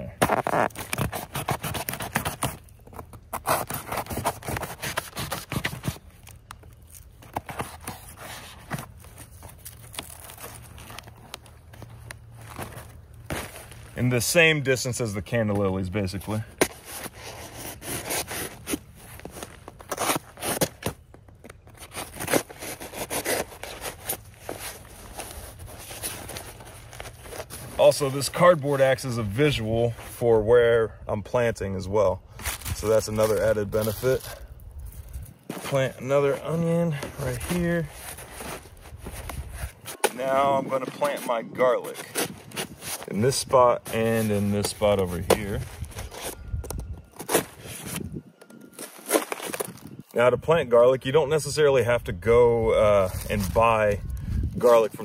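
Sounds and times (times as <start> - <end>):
knife cutting cardboard: 0.2 - 2.7, 3.3 - 6.1
hand digging in soil: 32.4 - 48.1, 48.7 - 55.0.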